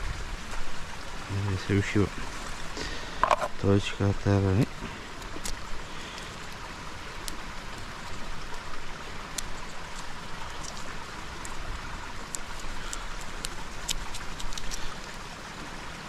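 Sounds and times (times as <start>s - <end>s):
stream running: 0.0s - 16.0s.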